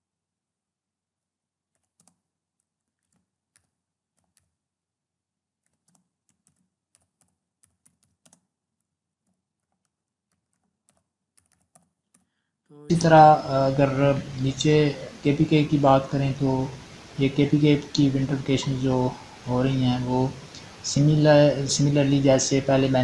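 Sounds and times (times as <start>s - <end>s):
faint computer keyboard typing: 1.8s - 4.6s, 5.6s - 8.5s, 9.2s - 12.3s.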